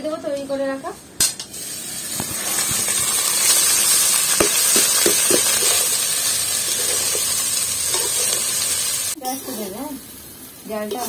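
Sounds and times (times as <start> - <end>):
ghee sizzling in pan: 1.5 - 11.0
wooden spatula scraping pan: 6.6 - 8.7.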